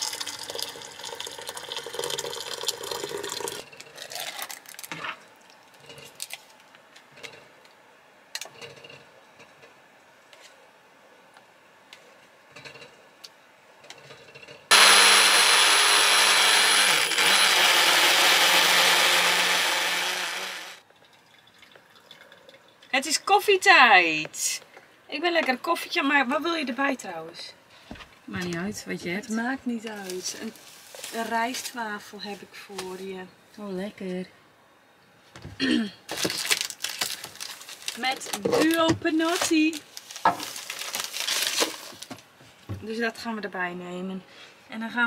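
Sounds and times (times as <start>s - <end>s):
water pouring into pan: 0.0s - 3.6s
blender running: 14.7s - 20.8s.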